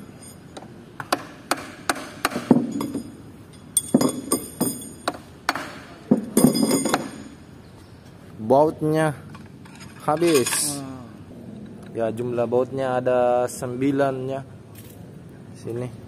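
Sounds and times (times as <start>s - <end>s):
metal tools clinking on steel: 0.0s - 0.7s, 2.5s - 5.2s, 6.1s - 7.6s, 9.3s - 11.0s.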